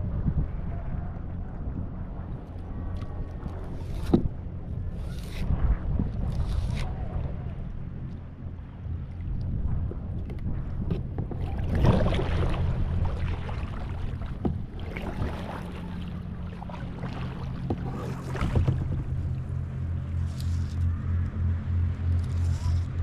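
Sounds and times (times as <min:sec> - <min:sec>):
kayak paddle splashing: 0:02.5 - 0:07.5, 0:09.1 - 0:21.3.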